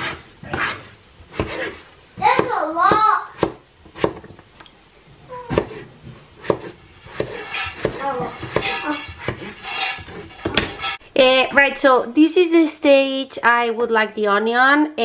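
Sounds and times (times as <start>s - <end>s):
knife chopping on cutting board: 0.0s - 4.4s, 5.4s - 10.9s.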